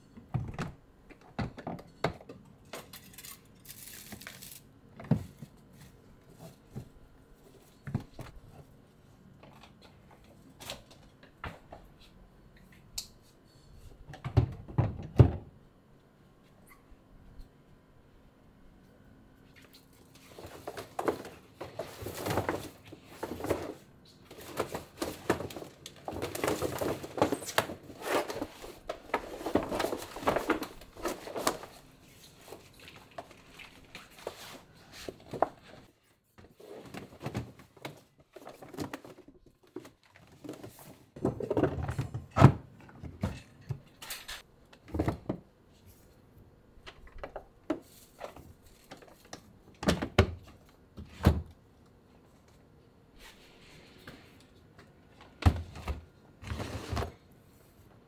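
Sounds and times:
plastic bags rustling: 20.1s - 35.9s.

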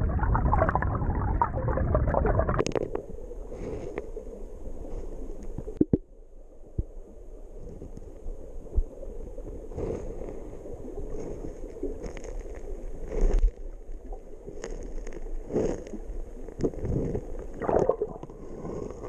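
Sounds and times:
muffled underwater rumble: 0.0s - 19.0s.

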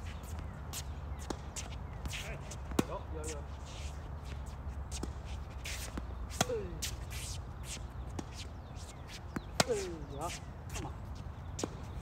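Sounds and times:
shoes scuffing on court: 0.0s - 12.0s
tennis racket striking ball: 4.9s - 7.4s, 9.3s - 10.2s.

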